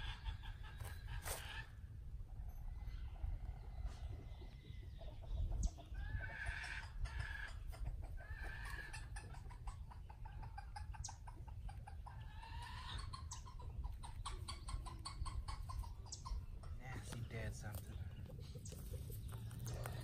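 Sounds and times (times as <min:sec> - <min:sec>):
chickens clucking: 0:00.0 - 0:20.0.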